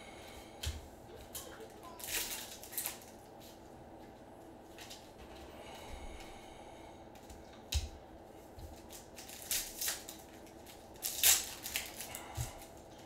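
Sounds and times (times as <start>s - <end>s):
plastic wrapper crinkling and tearing: 2.0s - 3.2s, 8.8s - 12.7s.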